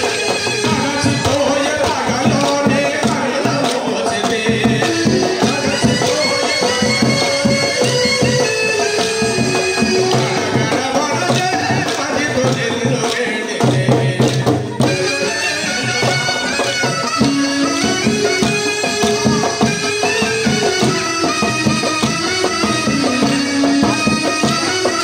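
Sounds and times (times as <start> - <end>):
reedy wind instrument melody: 0.0 - 2.1, 4.8 - 11.2, 14.7 - 25.0
rhythmic drumming: 0.0 - 25.0.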